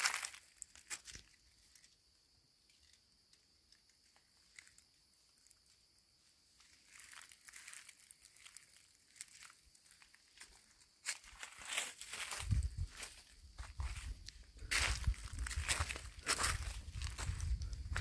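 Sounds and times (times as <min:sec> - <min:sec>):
footsteps crunching in dry leaves: 0:00.0 - 0:01.4, 0:06.6 - 0:18.0.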